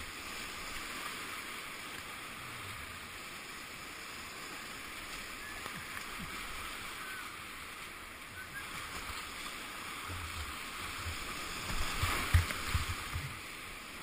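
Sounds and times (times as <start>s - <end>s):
rushing whitewater: 0.0s - 14.0s
water splashing against boat: 0.0s - 14.0s.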